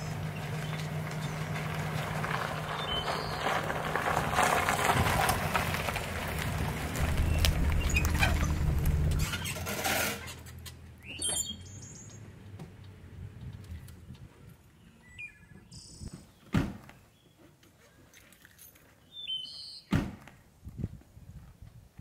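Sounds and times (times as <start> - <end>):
trailer rattles: 0.0 - 10.8
pickup truck engine: 0.0 - 11.1
low road rumble: 0.0 - 14.7
tyre noise: 0.8 - 10.5.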